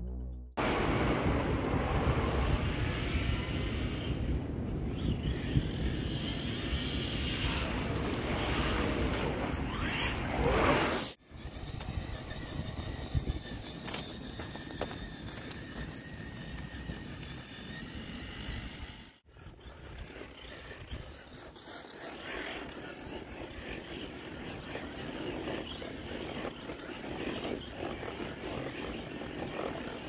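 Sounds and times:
wind on microphone: 0.6 - 21.4
tyres crunching on sandy ground: 13.4 - 17.6.

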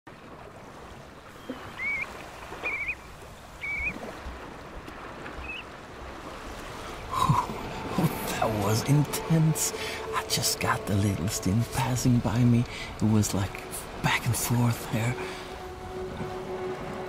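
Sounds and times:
surf washing on beach: 0.1 - 17.0
whistled shorebird calls: 1.3 - 4.1, 5.4 - 5.8.

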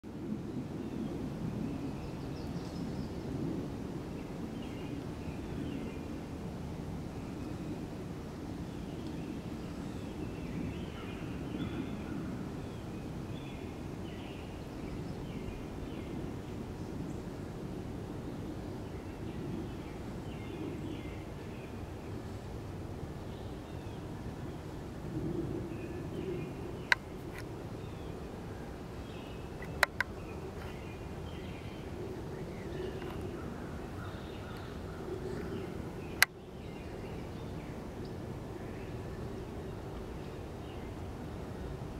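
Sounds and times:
outdoor background hum: 2.3 - 41.9
sharp clicks: 29.6 - 30.1.

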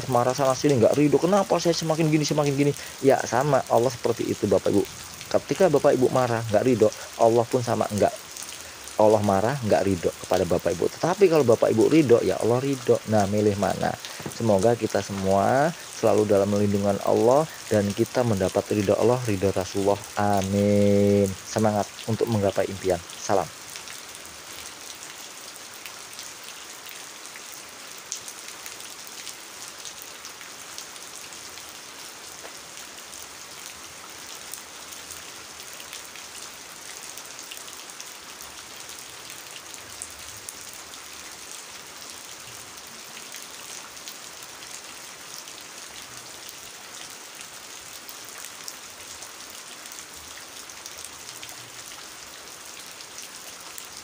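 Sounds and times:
rain falling on puddle: 0.0 - 54.0.

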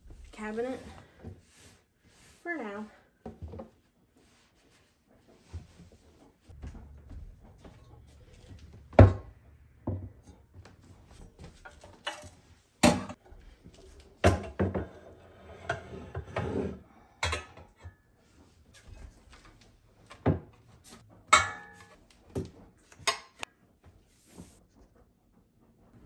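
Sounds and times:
pots and pans clunking: 6.5 - 13.2, 14.2 - 18.2, 21.2 - 23.4.

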